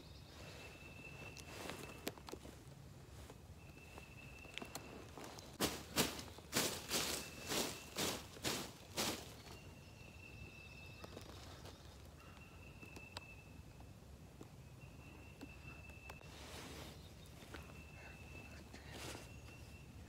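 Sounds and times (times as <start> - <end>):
rustle in leaves: 0.3 - 9.9, 16.2 - 19.8.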